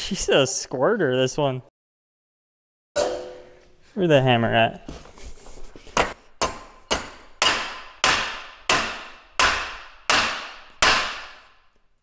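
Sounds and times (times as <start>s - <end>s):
hammer striking metal: 3.0s - 3.6s, 6.0s - 11.6s.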